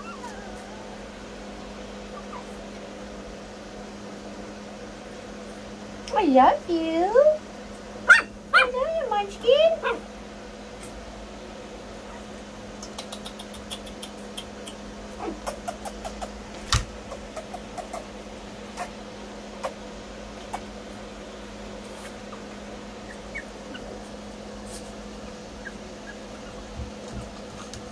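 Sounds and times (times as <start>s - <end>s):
puppies squeaking and whimpering: 0.0s - 2.8s, 23.0s - 24.2s, 25.5s - 27.8s
steady low hum: 0.0s - 27.9s.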